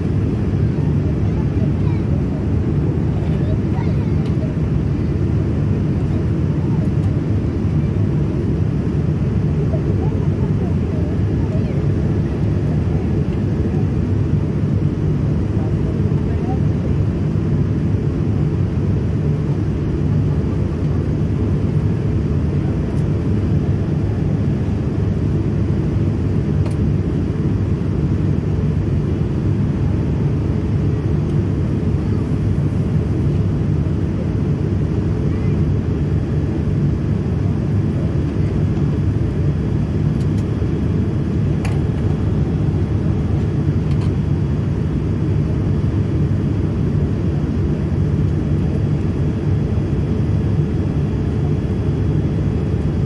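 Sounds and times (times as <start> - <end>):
airliner cabin rumble: 0.0 - 53.0.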